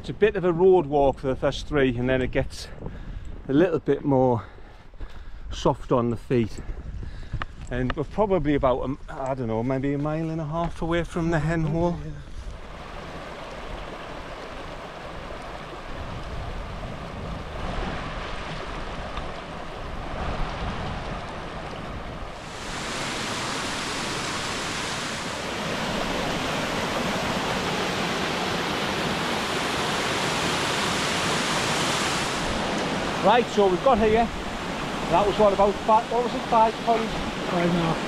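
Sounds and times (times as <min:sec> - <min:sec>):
stream running over rocks: 0:11.2 - 0:38.0
waterfall rushing: 0:12.6 - 0:38.0.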